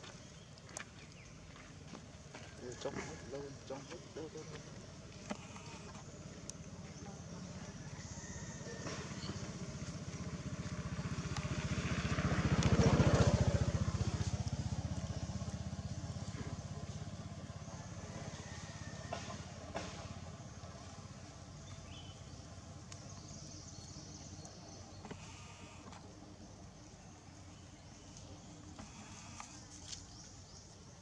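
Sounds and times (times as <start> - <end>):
vehicle engine passing by: 2.6 - 26.4.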